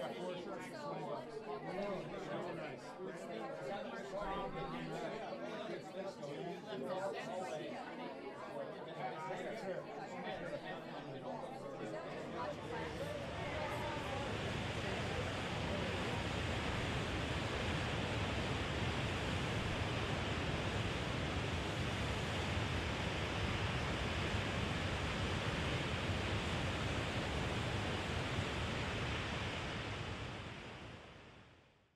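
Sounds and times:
ocean surf roaring: 12.4 - 31.5.

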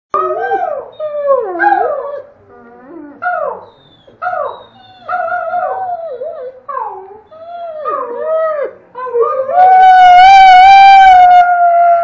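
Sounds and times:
dog howling: 4.2 - 12.0.

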